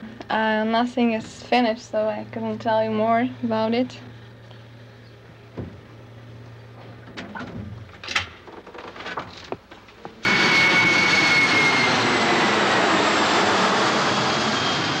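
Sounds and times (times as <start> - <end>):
jet-like roar with high whine: 10.2 - 15.0.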